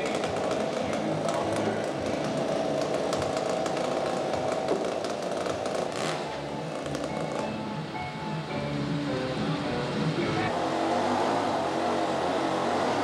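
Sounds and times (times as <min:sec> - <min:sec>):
chainsaw cutting a log: 0:00.0 - 0:07.4.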